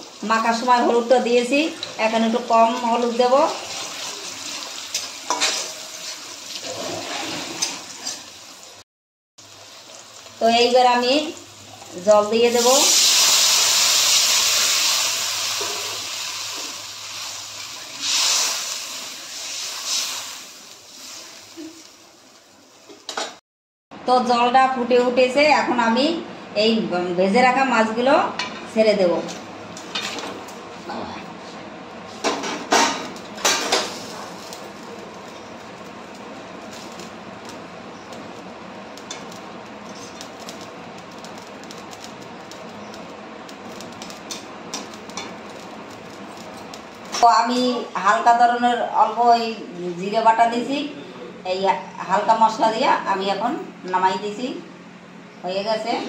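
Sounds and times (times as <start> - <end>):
curry simmering with hiss: 0.0 - 6.8, 9.4 - 23.1, 33.2 - 48.3
water sizzling in hot oil: 0.0 - 8.8, 9.4 - 23.1, 32.2 - 47.8
spatula stirring: 3.7 - 6.8.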